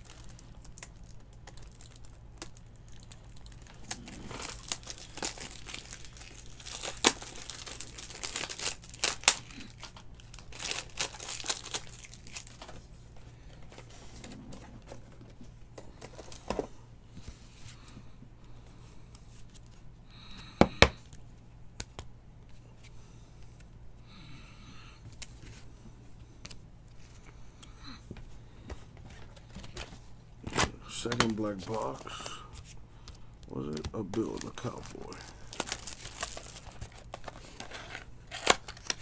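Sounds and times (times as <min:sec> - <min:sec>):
plastic wrap crinkling and tearing: 0:00.0 - 0:12.8, 0:30.5 - 0:32.6, 0:33.5 - 0:39.0.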